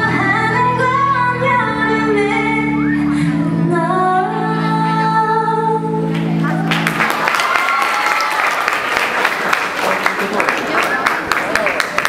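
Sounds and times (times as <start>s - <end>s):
woman singing pop song: 0.0s - 6.1s.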